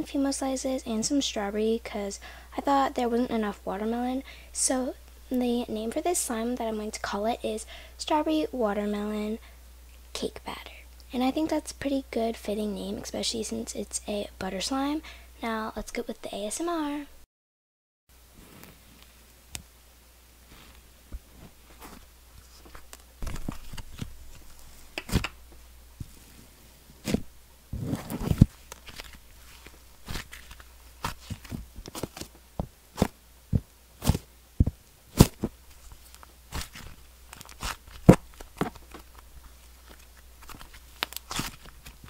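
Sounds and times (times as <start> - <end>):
crackly slime stretching: 28.0 - 32.4, 35.2 - 42.0.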